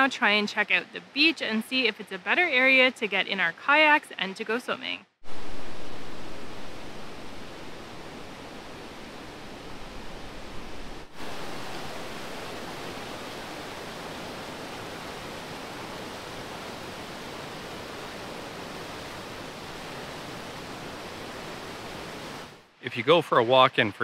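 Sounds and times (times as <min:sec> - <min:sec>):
river rapids rushing over weir: 0:05.3 - 0:22.6.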